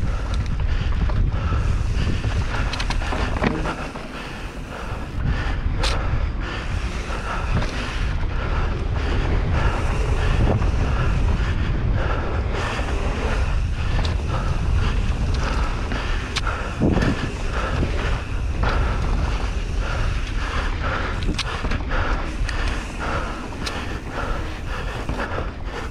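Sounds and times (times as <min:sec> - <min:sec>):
bike knocks and rattles: 0:00.0 - 0:05.2
bike tyres rolling on dirt: 0:00.0 - 0:25.9
wind buffeting microphone: 0:00.0 - 0:25.9.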